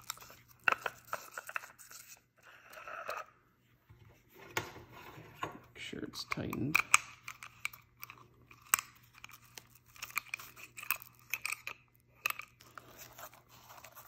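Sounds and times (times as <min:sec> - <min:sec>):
crinkly rustles: 0:12.5 - 0:14.0.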